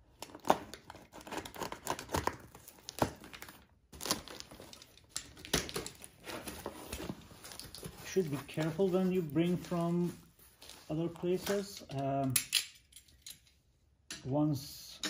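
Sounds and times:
tape tearing: 0.2 - 9.7
cardboard flaps crinkling: 0.2 - 11.7.

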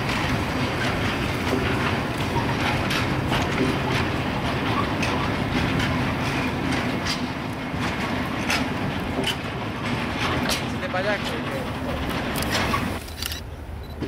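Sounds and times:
steel wheels rumbling on rail: 0.0 - 14.0
wheels clacking over rail joints: 0.0 - 14.0.

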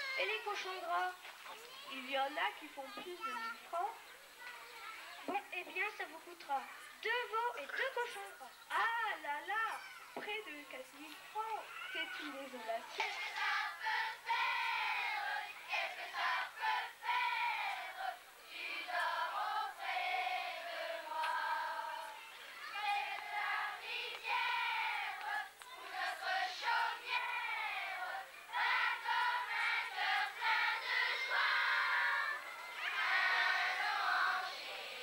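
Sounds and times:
children singing together: 12.9 - 35.0.

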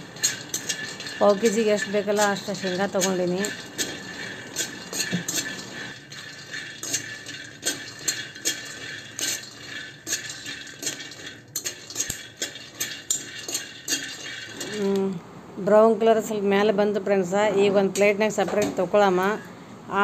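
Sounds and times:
nuts rattling against steel: 0.0 - 14.9
metal spatula scraping pan: 0.0 - 15.0.

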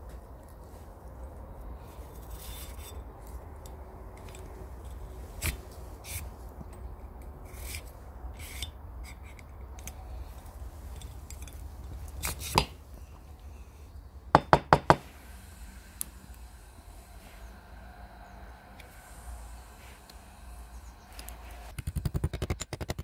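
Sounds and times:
knock: 14.4 - 15.0.

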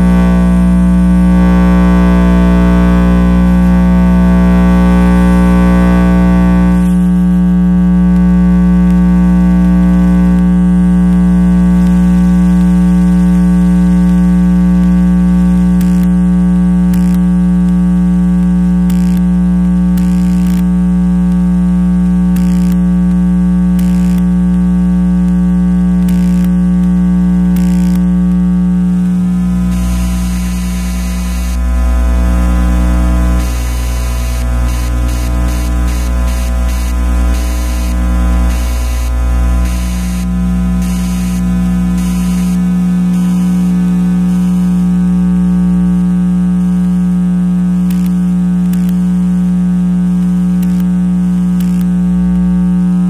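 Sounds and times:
electrical buzz over deep hum: 0.0 - 53.0.

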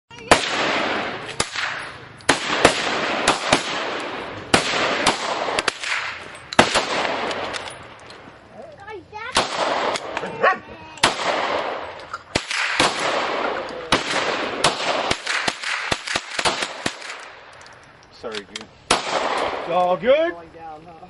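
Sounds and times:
gunshots with long echo: 0.3 - 8.0, 9.3 - 10.2, 11.0 - 17.5, 18.9 - 19.8.

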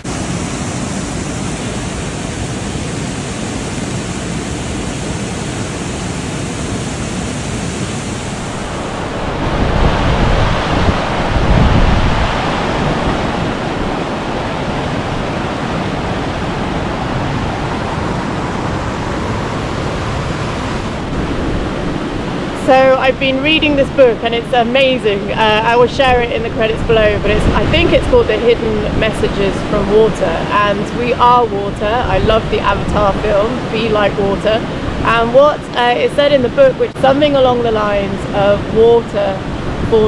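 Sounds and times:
waterfall rushing: 0.0 - 22.9.

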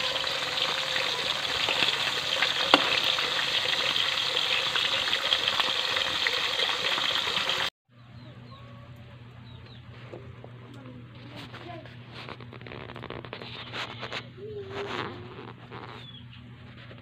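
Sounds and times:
fish sizzling in oil: 0.0 - 7.7.

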